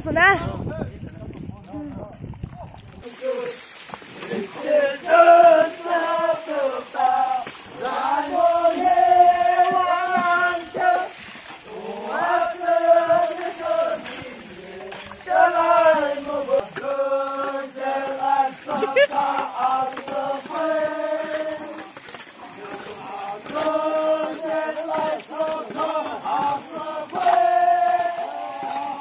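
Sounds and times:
men singing a chant: 0:03.0 - 0:29.0.

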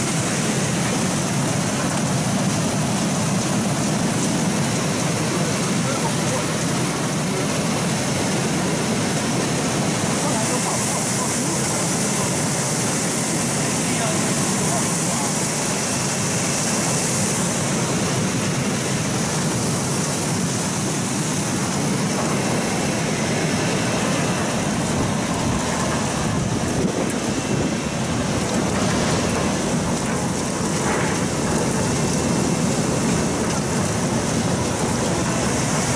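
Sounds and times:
machine noise: 0:00.0 - 0:35.9
water churning and spraying: 0:00.0 - 0:35.9.

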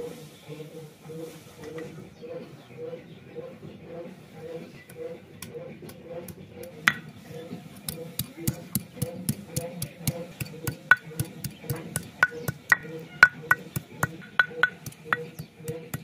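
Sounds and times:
stone roller knocking on grinding stone: 0:08.2 - 0:16.0.

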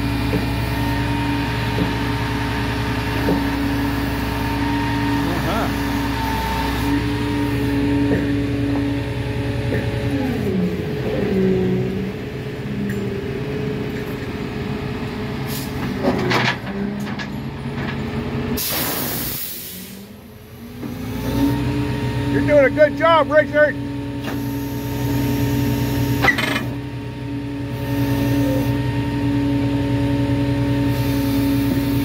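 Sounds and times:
heavy equipment engine running: 0:00.0 - 0:32.0
loud air hiss: 0:18.6 - 0:20.2.

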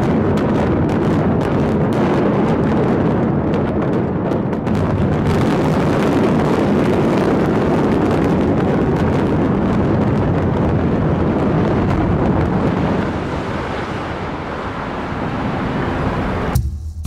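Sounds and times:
sharp explosive cracks: 0:00.0 - 0:14.1
building collapse rumble: 0:00.0 - 0:16.6.

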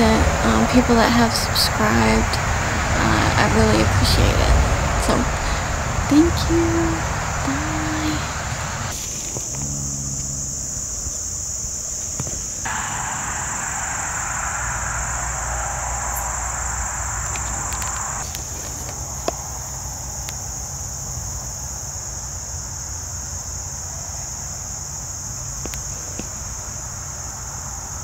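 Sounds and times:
crickets chirping: 0:00.0 - 0:28.0
hiss: 0:12.0 - 0:20.7
faint clicks: 0:17.2 - 0:19.4.

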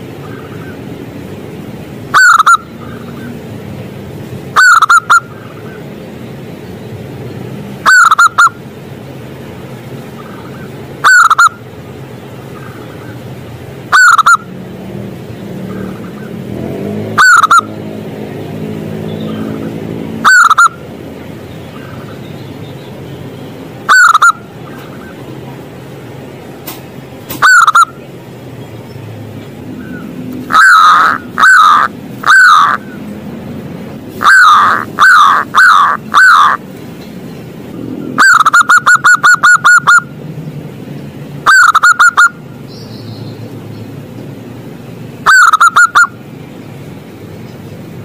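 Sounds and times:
dove cooing: 0:02.1 - 0:03.3, 0:07.9 - 0:08.5, 0:17.2 - 0:17.7, 0:20.2 - 0:20.8, 0:29.8 - 0:33.0, 0:34.1 - 0:36.6, 0:38.1 - 0:40.1, 0:41.5 - 0:42.4, 0:45.3 - 0:46.1.

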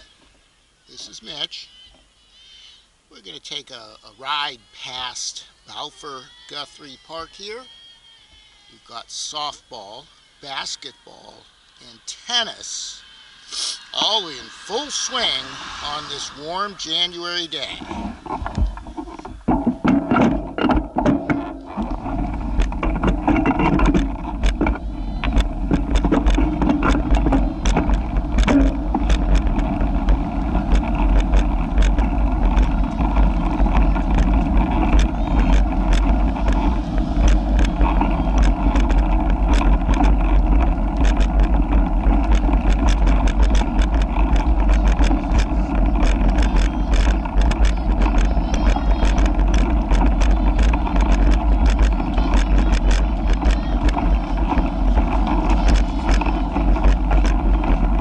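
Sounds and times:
wind and tyre rumble: 0:14.0 - 0:58.0
small clicks and rattles: 0:17.6 - 0:58.0.

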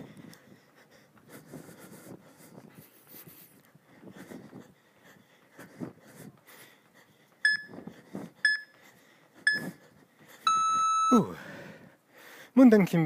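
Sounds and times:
timer short beeps: 0:07.4 - 0:07.7, 0:08.4 - 0:08.7, 0:09.5 - 0:09.7, 0:10.5 - 0:11.3.

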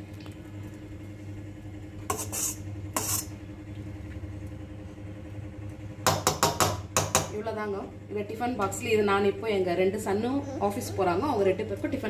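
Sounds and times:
steady low hum: 0:00.0 - 0:12.0
metal spatula scraping pan: 0:02.1 - 0:03.4.

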